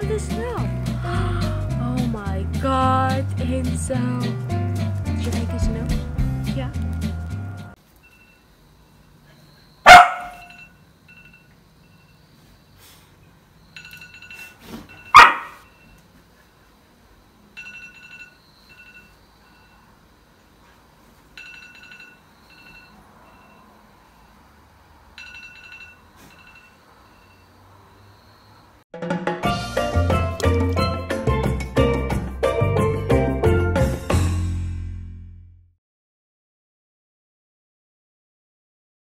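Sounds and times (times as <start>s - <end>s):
dog barking: 9.8s - 10.5s, 15.1s - 15.6s.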